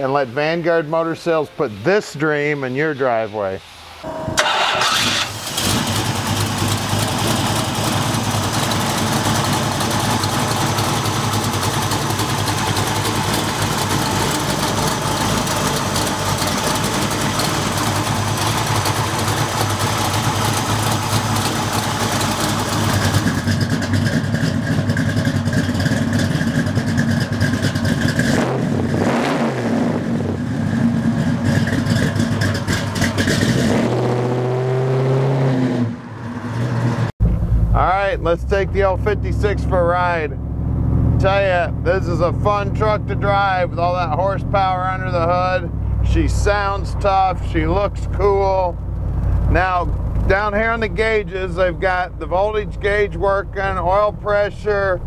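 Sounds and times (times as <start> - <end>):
vee eight engine idling: 4.0 - 28.3, 37.2 - 55.0
engine revving: 4.1 - 55.0
truck pulling away: 4.4 - 55.0.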